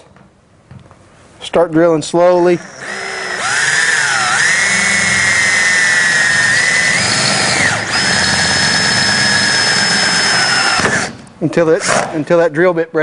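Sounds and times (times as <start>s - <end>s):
power drill whining through sheet metal: 2.2s - 11.3s.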